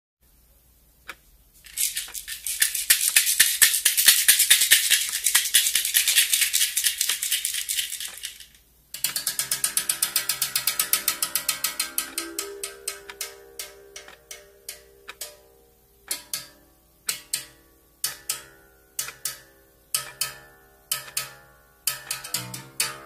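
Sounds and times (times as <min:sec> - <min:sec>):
fast ticking rhythm: 0:01.1 - 0:23.0
hand shaker rattling: 0:01.6 - 0:12.4
held pitched tones: 0:09.2 - 0:16.2.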